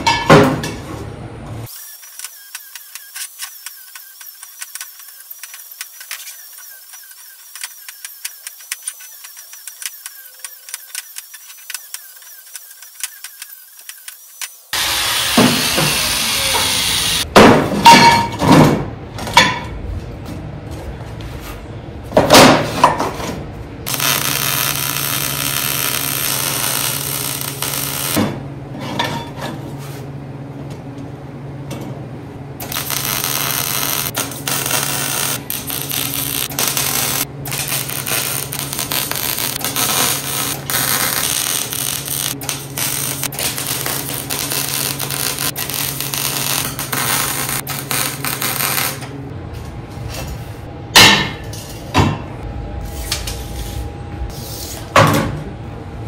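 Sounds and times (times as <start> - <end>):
welder crackling: 1.7 - 17.3, 23.9 - 28.2, 32.6 - 49.1
steady low hum: 29.5 - 56.0.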